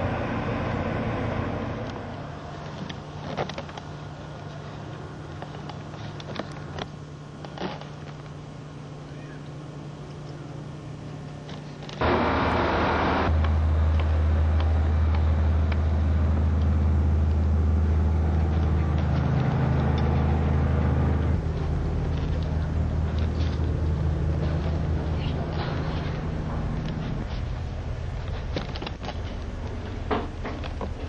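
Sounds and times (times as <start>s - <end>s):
quiet steady hum: 0.0s - 31.0s
ship engines droning: 0.0s - 31.0s
rush of noise: 12.0s - 16.2s.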